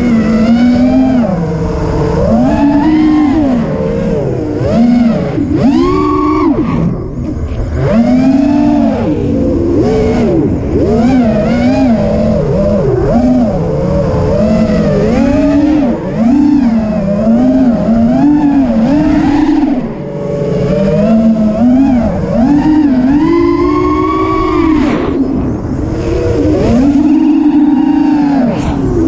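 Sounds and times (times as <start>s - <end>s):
quadcopter motors whining: 0.0s - 29.0s
rush of air: 24.2s - 29.0s.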